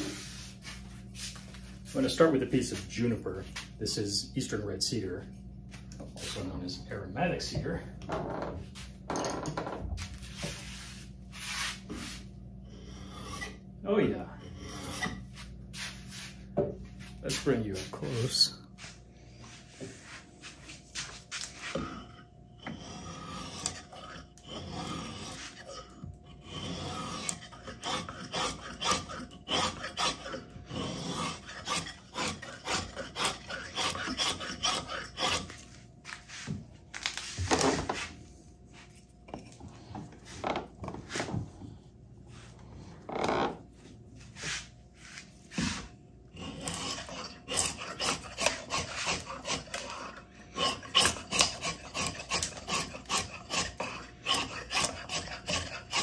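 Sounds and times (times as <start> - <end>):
drawknife scraping wood: 20.0 - 38.1, 44.4 - 56.0.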